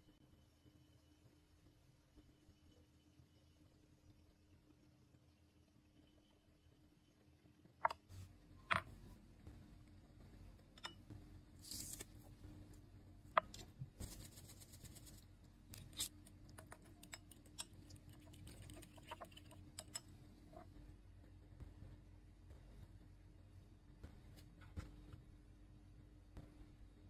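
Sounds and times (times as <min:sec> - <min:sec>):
spoon scraping glass bowl: 0:15.8 - 0:20.7.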